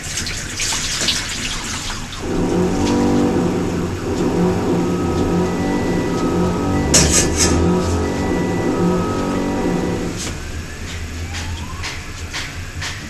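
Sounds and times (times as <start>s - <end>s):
liquid pouring and trickling: 0.0s - 3.2s
steady multi-tone hum: 2.2s - 13.0s.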